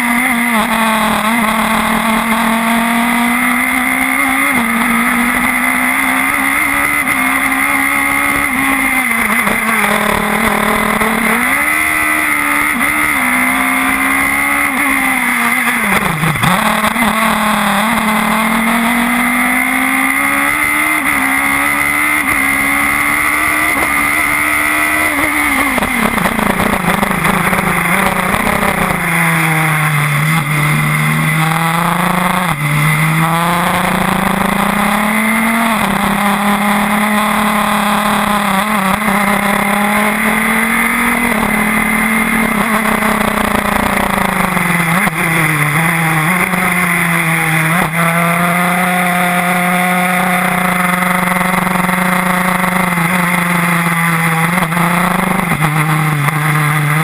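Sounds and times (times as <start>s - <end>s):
racing car engine revving: 0.0s - 57.0s.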